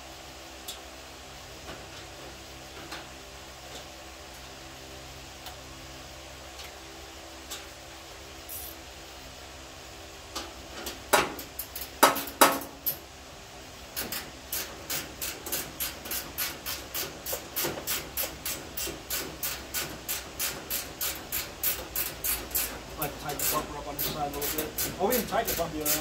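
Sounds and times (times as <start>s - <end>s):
ratchet wrench clicking: 14.0s - 26.0s.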